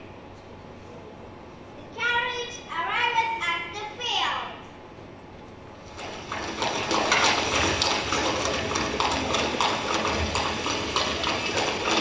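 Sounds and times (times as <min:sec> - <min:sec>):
horse hooves clip-clopping: 0:05.9 - 0:12.0.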